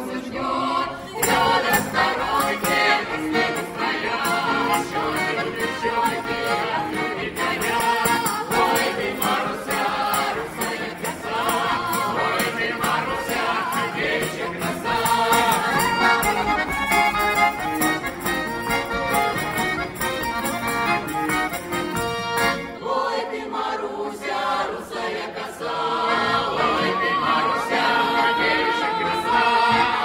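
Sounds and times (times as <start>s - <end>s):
mixed choir singing: 0.0s - 18.5s, 22.4s - 30.0s
button accordion: 0.2s - 30.0s
tambourine jingling: 1.2s - 22.8s.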